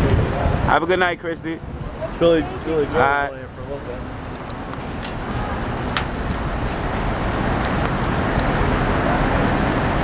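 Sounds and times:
street traffic rumble: 0.0 - 10.0.

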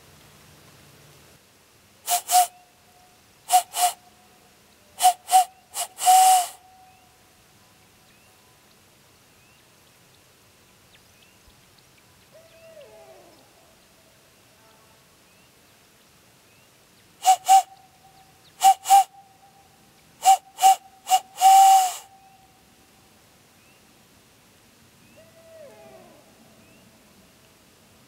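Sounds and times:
owl call blown through hands: 2.1 - 2.6, 3.5 - 4.0, 5.0 - 6.9, 17.2 - 17.9, 18.6 - 19.6, 20.2 - 22.5.

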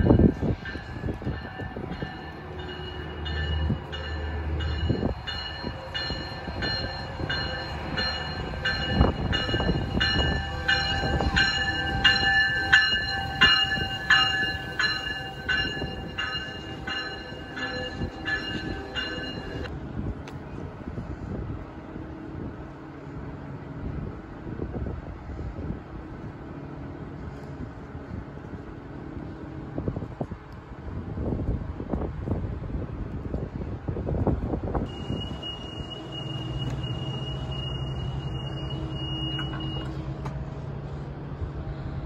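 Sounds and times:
train bell ringing: 0.0 - 19.7, 34.9 - 40.0
train wheels rumbling: 0.0 - 42.0.

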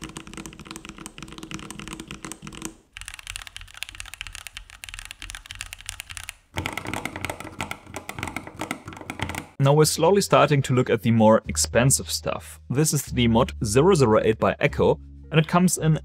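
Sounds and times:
fast typing on mechanical keyboard: 0.0 - 9.6.

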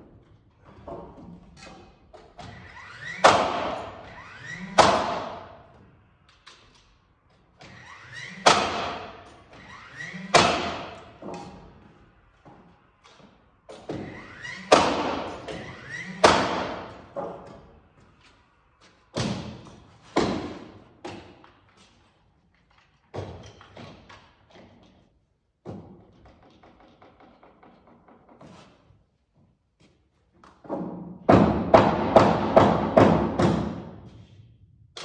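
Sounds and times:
nail gun shots: 3.2 - 4.0, 4.8 - 5.5, 8.4 - 9.2, 10.3 - 11.0, 14.7 - 15.5, 16.2 - 17.0.

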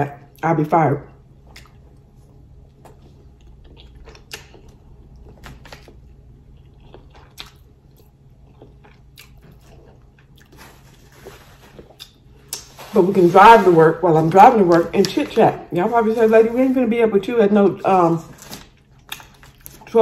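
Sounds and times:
low background hum: 0.0 - 20.0
close-up chewing: 1.4 - 12.8.

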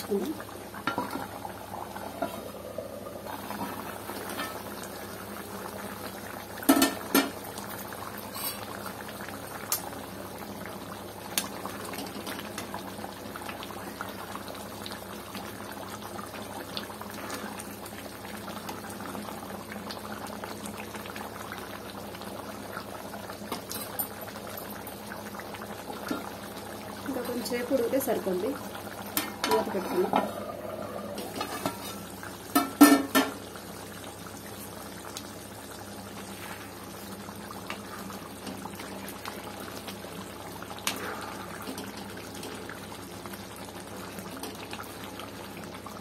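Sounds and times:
curry bubbling: 0.0 - 46.0.

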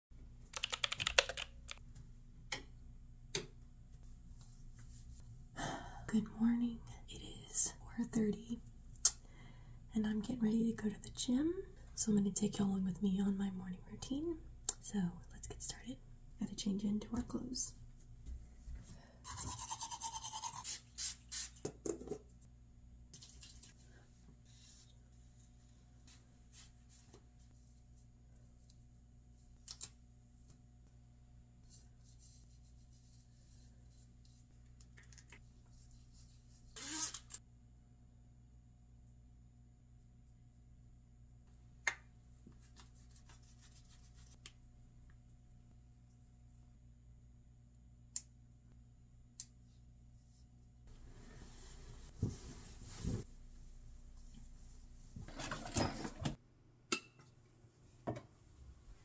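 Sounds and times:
faint steady hum: 0.2 - 59.0
fabric rustling: 51.0 - 53.6.

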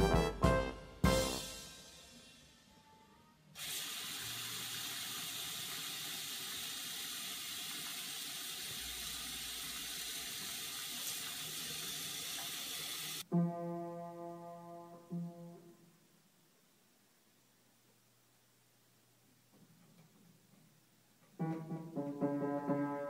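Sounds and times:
faucet running into sink: 3.6 - 13.2.

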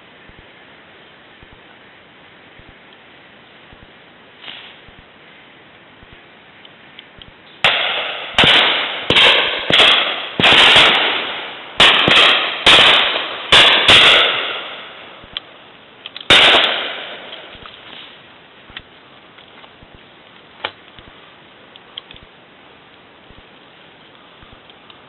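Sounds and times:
shotguns firing: 7.6 - 15.4, 16.3 - 17.6.

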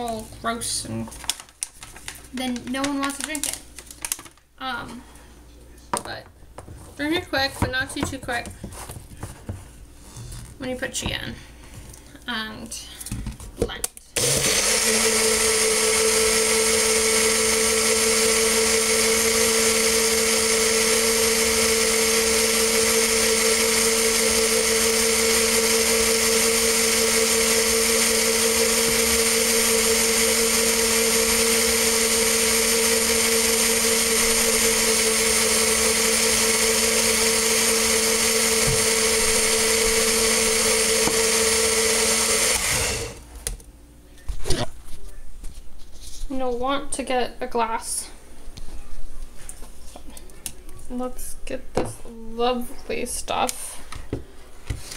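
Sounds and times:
blender running: 14.2 - 43.3.

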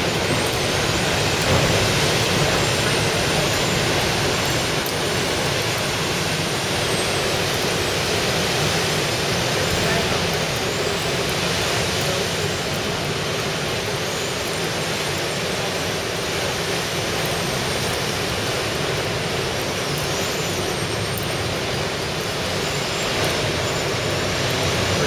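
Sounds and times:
ocean surf breaking over rocks: 0.0 - 25.0.

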